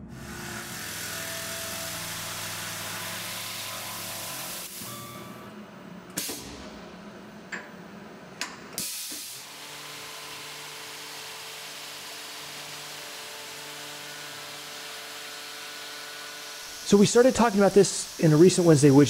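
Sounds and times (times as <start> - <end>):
mill spindle running: 0.0 - 8.6, 9.2 - 19.0
coolant spray hissing: 16.7 - 19.0.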